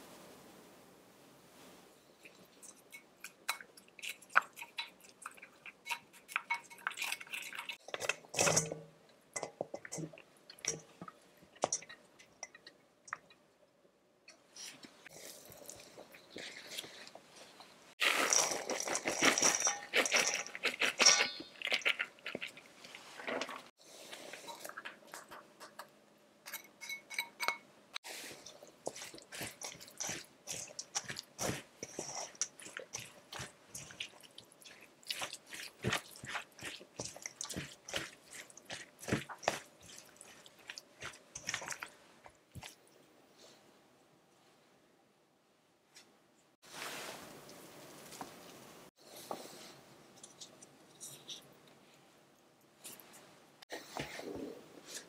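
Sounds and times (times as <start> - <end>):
filling being stirred with crackles: 1.5 - 43.6, 46.6 - 55.0
vegetable filling crunching in a bowl: 18.0 - 23.7, 28.1 - 42.8.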